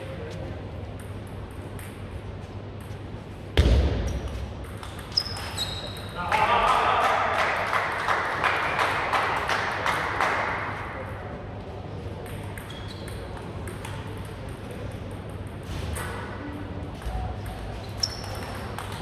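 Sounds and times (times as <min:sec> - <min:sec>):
people clapping: 0:06.2 - 0:11.1.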